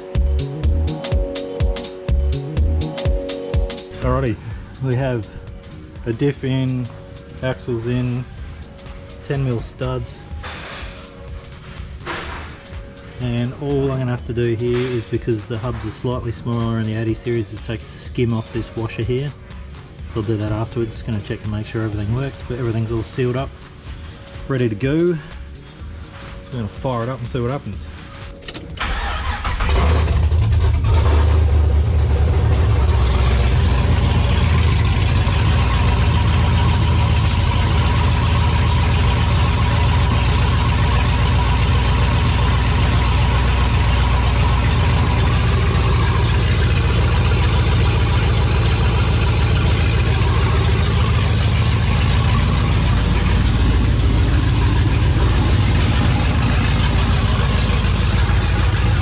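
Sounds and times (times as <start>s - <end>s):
car engine cranking and starting: 28.0s - 59.0s.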